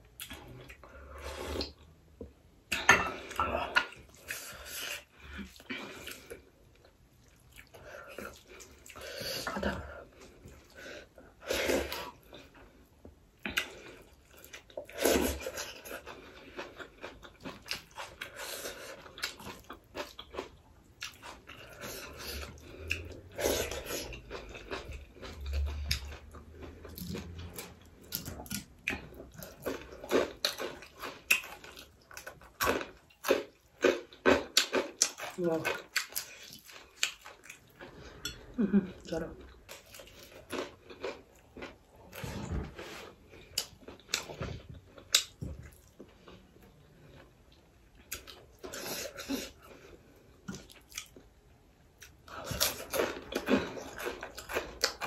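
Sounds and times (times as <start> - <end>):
chewing and mouth clicks: 13.4 - 38.5, 43.4 - 48.8, 50.4 - 51.3, 52.0 - 55.0.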